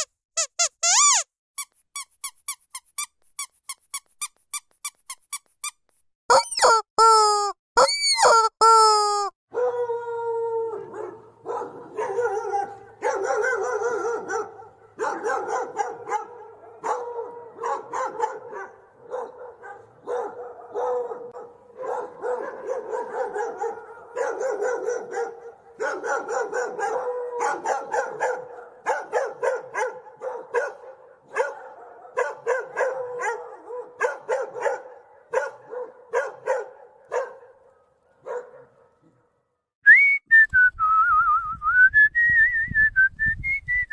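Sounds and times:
dog barking and yipping: 0:06.3 - 0:06.9, 0:07.8 - 0:08.5, 0:09.5 - 0:09.9, 0:10.7 - 0:39.3
dog howling: 0:09.5 - 0:11.3, 0:26.4 - 0:28.4, 0:32.6 - 0:33.9.

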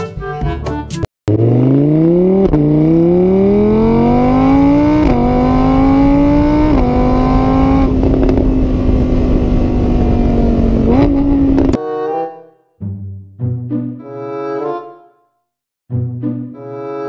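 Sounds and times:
car engine accelerating: 0:01.3 - 0:11.8.

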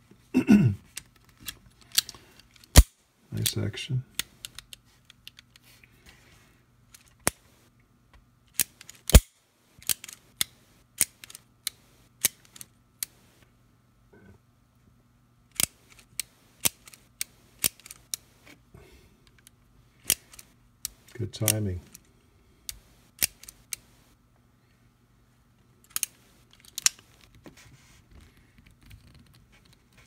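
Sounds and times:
revolver mechanism metallic clicks: 0:25.9 - 0:27.0.

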